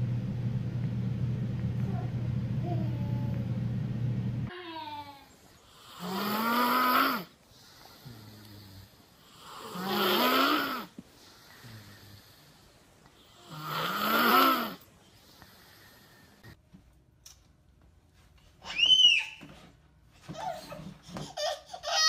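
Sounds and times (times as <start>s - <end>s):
child snoring: 4.6s - 12.5s, 13.3s - 14.8s
soft breathing: 7.3s - 9.9s, 10.8s - 13.5s, 14.8s - 16.6s.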